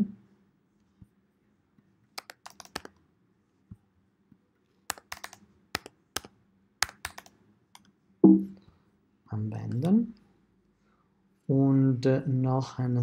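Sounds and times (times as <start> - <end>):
computer keyboard typing: 2.2 - 3.0, 4.9 - 7.9.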